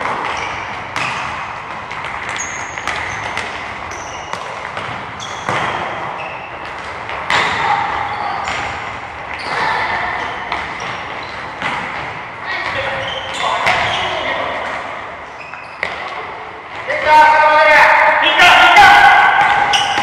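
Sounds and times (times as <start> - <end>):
balls kicked and bouncing: 0.0 - 14.8, 15.4 - 17.1, 18.8 - 20.0
high squeaks: 2.4 - 4.4, 5.2 - 6.6, 12.5 - 14.5, 15.2 - 16.2, 19.6 - 20.0.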